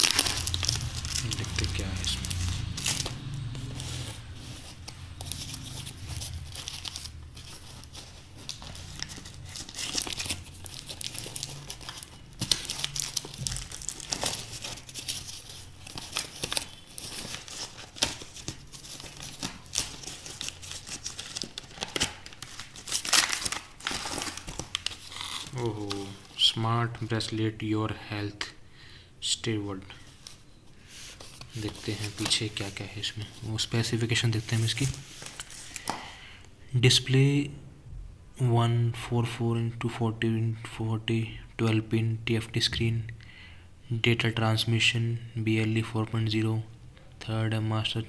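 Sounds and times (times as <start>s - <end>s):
packing tape tearing: 0.0s - 3.8s, 4.7s - 26.3s
plastic wrapping crinkling: 0.0s - 26.6s, 30.0s - 36.2s.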